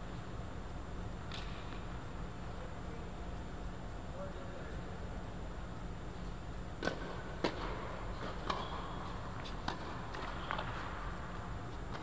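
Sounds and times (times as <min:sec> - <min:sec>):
tennis ball struck by rackets: 0:06.8 - 0:10.8
tennis ball bouncing on hard court: 0:06.8 - 0:10.9.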